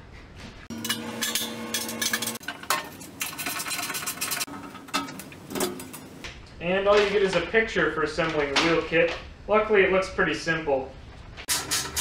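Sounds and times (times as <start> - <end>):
metallic ring: 0.7 - 2.4.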